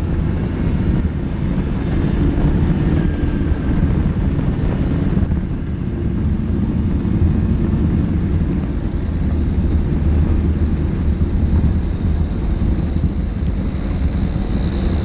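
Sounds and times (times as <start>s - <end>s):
kart engine running at speed: 0.0s - 15.0s.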